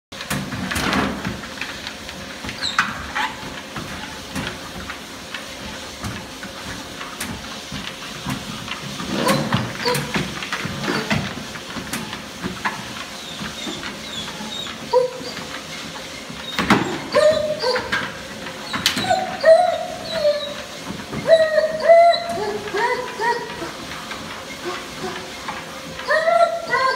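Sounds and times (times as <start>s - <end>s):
treadmill humming: 0.2s - 26.9s
paws knocking on belts: 0.5s - 26.9s
dog whimpering: 9.2s - 10.2s, 13.2s - 15.5s, 16.4s - 23.8s, 24.6s - 25.3s, 26.0s - 26.9s.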